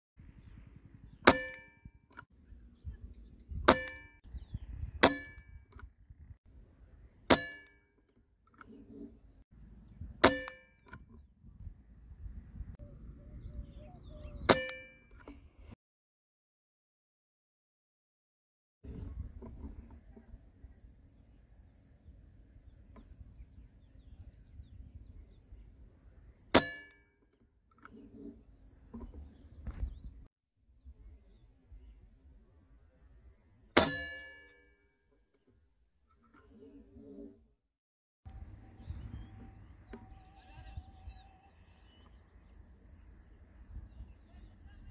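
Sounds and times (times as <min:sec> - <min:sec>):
short metallic ring: 0:01.3 - 0:02.0, 0:07.3 - 0:07.8, 0:10.2 - 0:11.0, 0:33.8 - 0:34.8.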